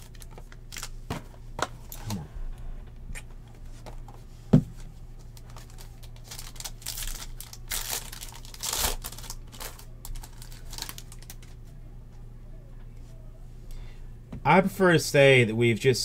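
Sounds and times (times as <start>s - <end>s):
plastic wrapping crinkling and tearing: 0.0s - 1.0s, 5.2s - 11.6s.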